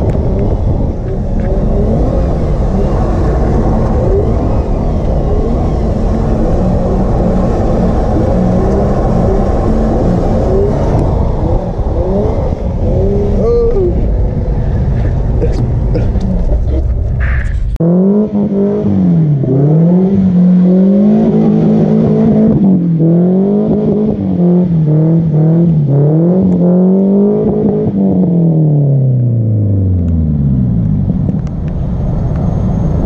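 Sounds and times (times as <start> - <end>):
car engine revving: 0.0 - 33.0.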